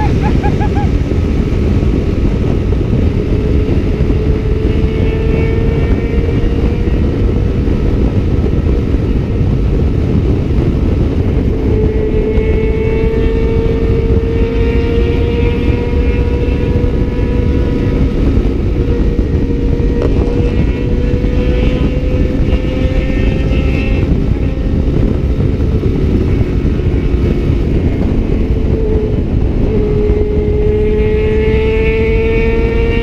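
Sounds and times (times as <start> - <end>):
motorcycle engine pulling hard: 0.0 - 33.0
wind rush on microphone: 0.0 - 33.0.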